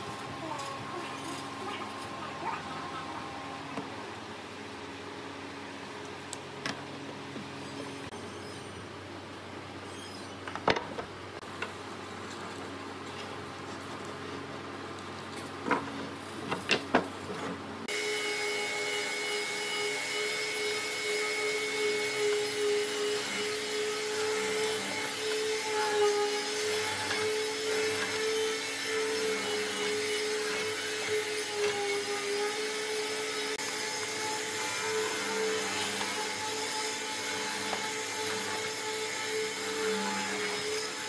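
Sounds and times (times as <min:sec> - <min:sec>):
mortiser boring into wood: 0:17.9 - 0:41.0.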